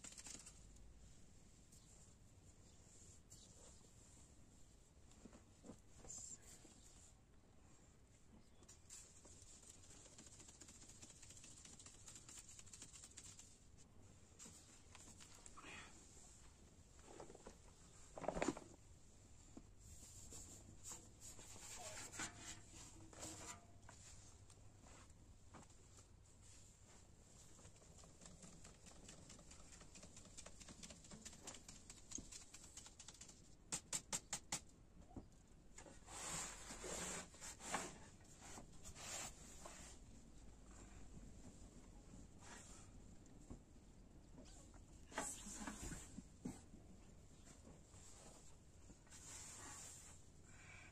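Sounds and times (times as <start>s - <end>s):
flour sifting through sieve: 8.9s - 13.8s, 49.1s - 50.2s.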